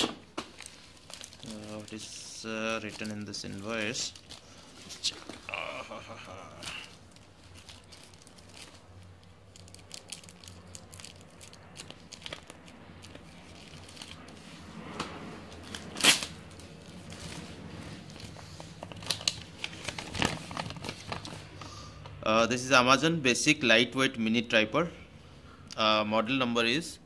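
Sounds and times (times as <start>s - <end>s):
plastic and paper crinkling: 0.4s - 14.6s, 15.5s - 21.6s.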